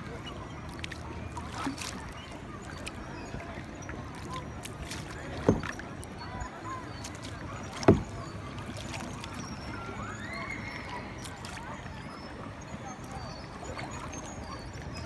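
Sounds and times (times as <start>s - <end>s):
water wash from paddling: 0.0s - 15.0s
sharp paddle strikes: 5.4s - 5.7s, 7.8s - 8.2s.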